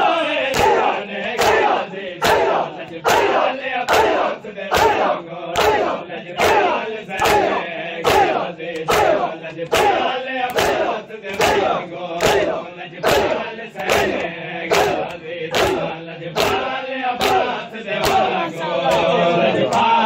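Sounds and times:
men chanting: 0.0 - 20.0
hands striking bare chests: 0.5 - 18.4.

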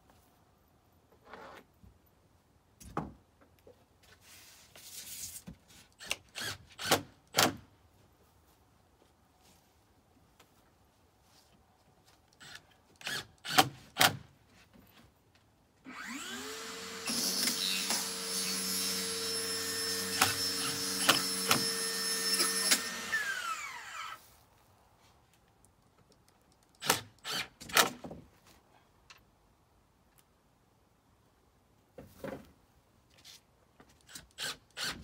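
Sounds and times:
power tool grinding: 15.9 - 24.2.

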